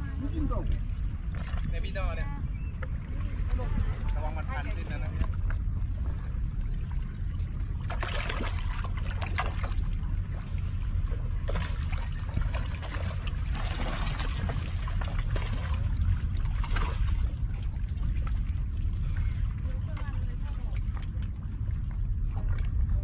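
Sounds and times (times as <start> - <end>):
wind rumble on microphone: 0.0 - 23.0
fish splashing in water: 7.6 - 10.6, 11.3 - 20.8.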